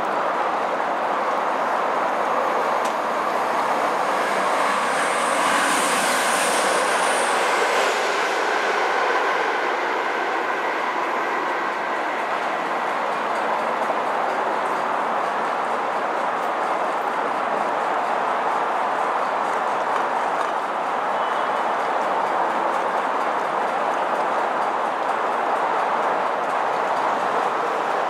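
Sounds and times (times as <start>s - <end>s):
train rumbling: 0.0s - 28.0s
high wheel squeal: 3.8s - 9.0s, 21.1s - 21.8s.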